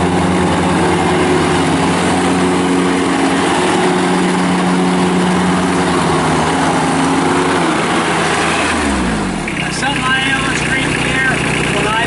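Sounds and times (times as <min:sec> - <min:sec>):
diesel tractor engine running: 0:00.0 - 0:12.0.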